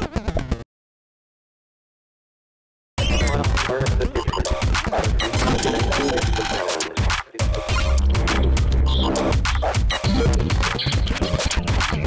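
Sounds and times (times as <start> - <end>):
electronic music: 3.0 - 12.0
choppy high sounds: 3.1 - 11.3.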